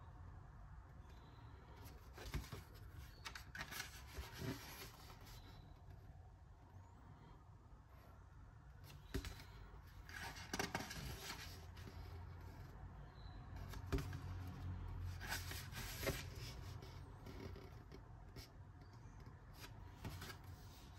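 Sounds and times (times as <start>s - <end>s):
low steady hum: 0.0s - 20.9s
paper pages turning: 1.9s - 5.6s.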